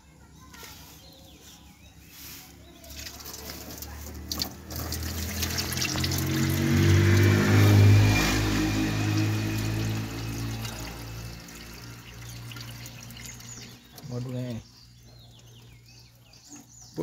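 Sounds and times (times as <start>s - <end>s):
water pouring from jug: 2.9s - 14.2s.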